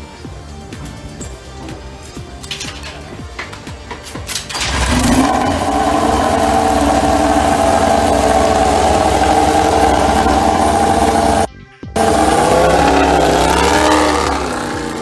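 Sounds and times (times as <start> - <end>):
motorcycle engine starting and idling: 4.3 - 15.0.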